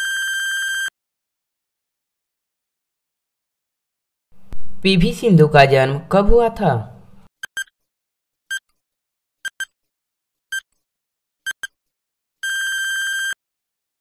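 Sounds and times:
electronic timer beeps: 7.4 - 7.7, 9.4 - 9.7, 11.5 - 11.8, 12.4 - 13.4
long steady beep: 12.4 - 13.4.

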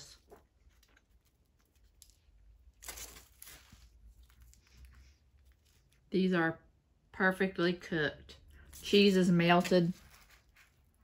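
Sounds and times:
bread rolls tearing: 0.0 - 6.1, 8.7 - 11.0.

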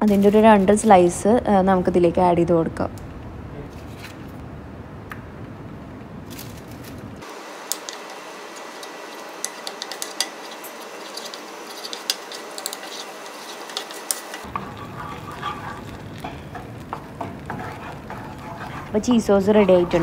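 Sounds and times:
spatula scraping pan: 7.7 - 20.0.

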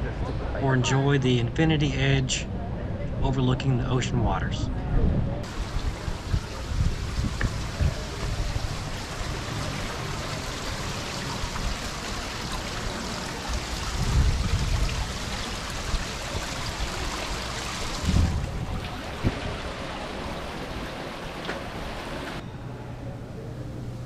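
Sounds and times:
wind on microphone: 4.6 - 9.4, 13.7 - 21.0
water rushing: 5.4 - 22.4.

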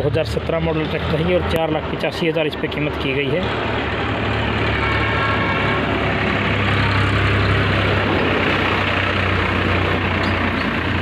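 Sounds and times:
tractor diesel engine idling: 0.6 - 11.0.

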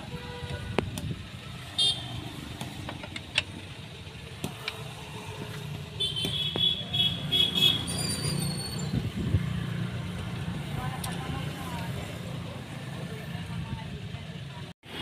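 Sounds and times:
short high squeaks: 7.4 - 9.0.

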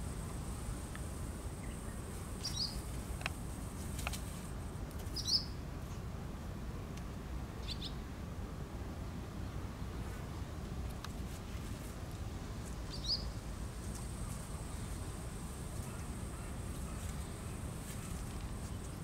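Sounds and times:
low background noise: 0.0 - 19.0
bird chirping: 1.5 - 2.9, 5.1 - 5.6, 7.6 - 8.0, 12.9 - 13.4.

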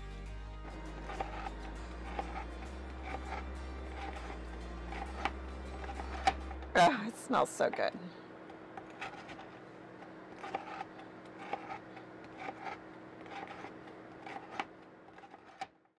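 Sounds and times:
steady low hum: 0.0 - 15.9
knife crunching through biscotti: 0.7 - 6.5, 10.3 - 15.6.

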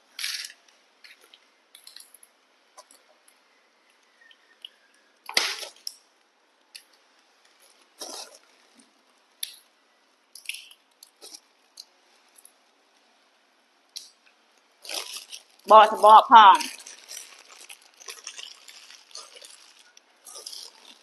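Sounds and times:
monkeys cracking seeds: 14.8 - 21.0.

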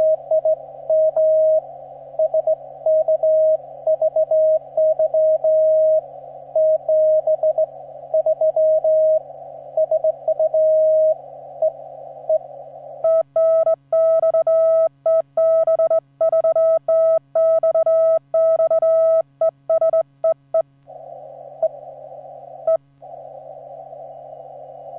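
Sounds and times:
receiver hiss: 0.0 - 24.9
morse code tones: 13.0 - 20.6.

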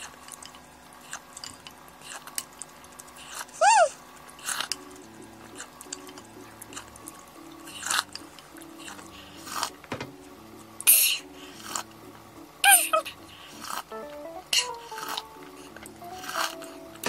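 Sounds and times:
soft background music: 4.6 - 17.0.

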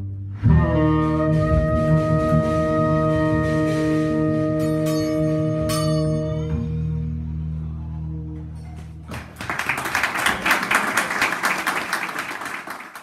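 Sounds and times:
audience applause: 8.8 - 13.0.

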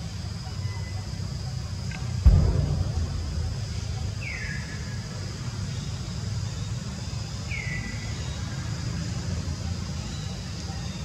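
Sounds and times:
steady low rumble: 2.2 - 6.2.

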